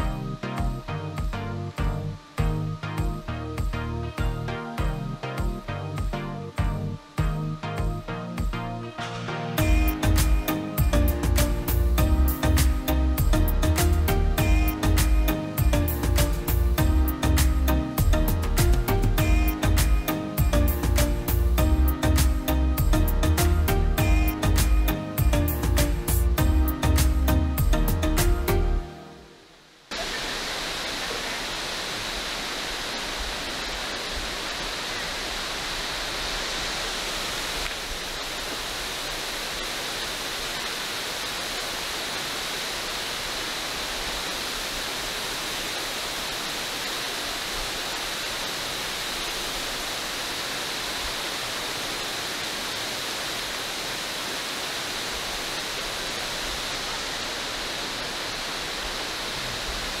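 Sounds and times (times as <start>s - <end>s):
waterfall rushing: 28.8s - 60.0s.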